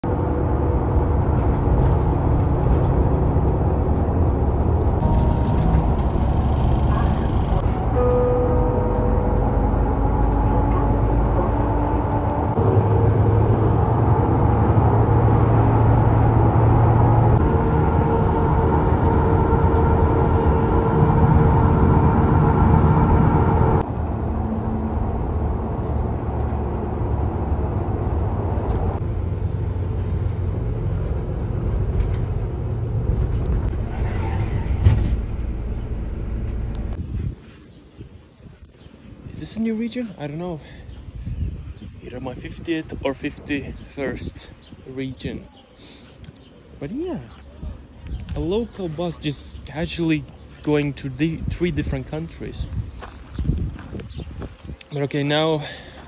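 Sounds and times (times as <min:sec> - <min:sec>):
bus engine and road noise: 0:00.0 - 0:56.0
humming drivetrain tones: 0:00.2 - 0:37.0.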